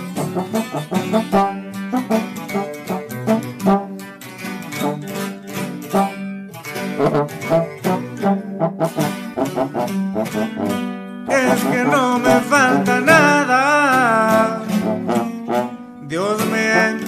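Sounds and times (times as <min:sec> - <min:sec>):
plucked string notes: 0:00.0 - 0:17.0
person singing: 0:11.3 - 0:15.2, 0:16.0 - 0:17.0.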